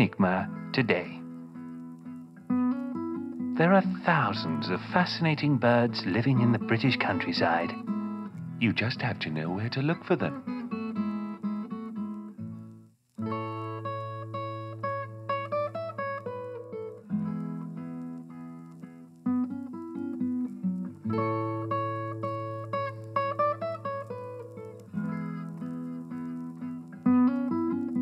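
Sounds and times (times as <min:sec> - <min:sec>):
plucked-string tune: 0:00.0 - 0:12.4.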